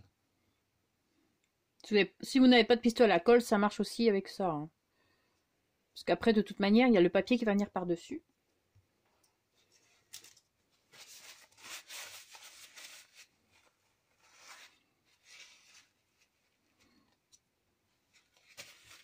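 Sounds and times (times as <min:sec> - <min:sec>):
hands and paper rubbing on card: 0:10.9 - 0:17.0.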